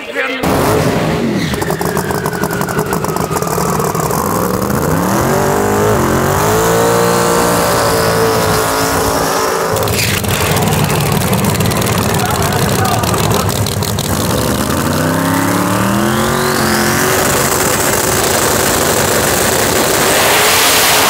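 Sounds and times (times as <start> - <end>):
drag car engine at full throttle: 0.4 - 21.0.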